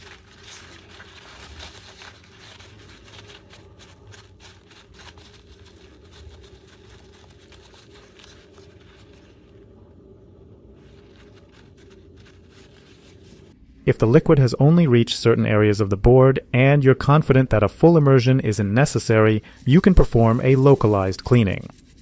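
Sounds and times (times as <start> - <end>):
paper towel rustling: 0.0 - 9.8, 10.6 - 13.6, 18.9 - 21.7
faint steady hum: 0.0 - 22.0.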